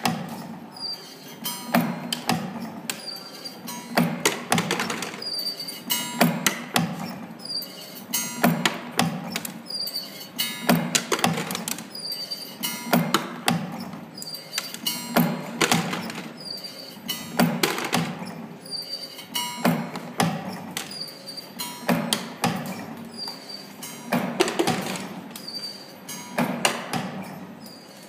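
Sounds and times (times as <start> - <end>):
spring forming machine clicking: 1.4 - 7.2, 8.1 - 9.6, 10.4 - 11.9, 12.6 - 16.4, 21.6 - 27.8.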